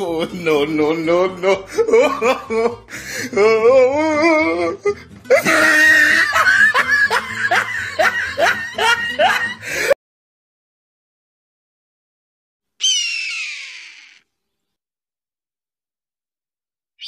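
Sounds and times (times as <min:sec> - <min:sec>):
music: 0:00.0 - 0:10.0
person laughing: 0:01.3 - 0:10.0.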